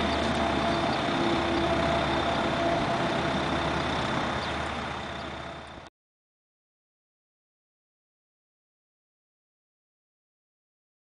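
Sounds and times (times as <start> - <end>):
steady tones: 0.0 - 5.8.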